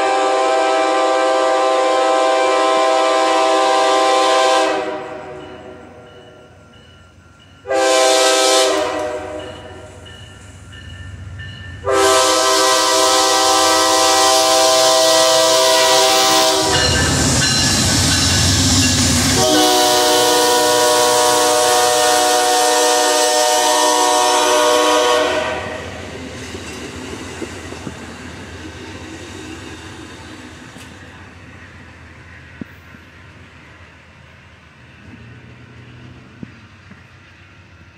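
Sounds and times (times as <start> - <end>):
locomotive air horn blasts: 0.0 - 6.0, 7.6 - 9.9, 11.8 - 17.2, 19.4 - 26.0
locomotive rumbling past: 0.0 - 37.9
passenger cars rolling past: 25.8 - 37.9.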